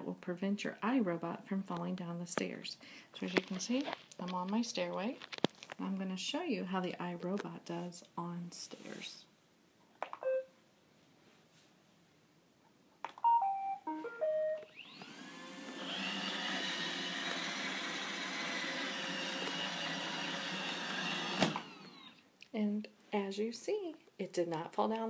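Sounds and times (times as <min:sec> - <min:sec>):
short beep: 0:10.2 - 0:10.5
tune of beeps: 0:10.2 - 0:10.5, 0:13.2 - 0:14.7
vacuum motor whining: 0:14.7 - 0:22.2.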